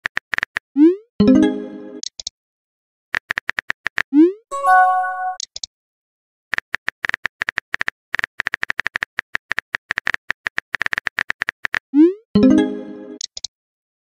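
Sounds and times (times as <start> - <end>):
bright multi-tone chime: 4.5 - 5.4
keyboard typing clicks: 13.2 - 13.5.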